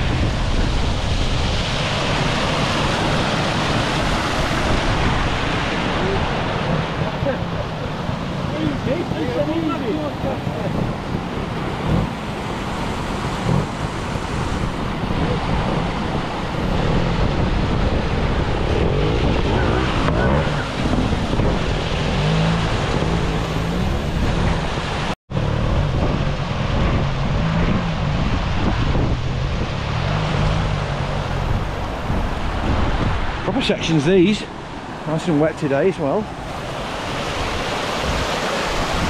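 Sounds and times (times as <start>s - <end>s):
fast-flowing water rushing: 0.0s - 39.0s
motorcycle engine revving: 10.8s - 33.3s.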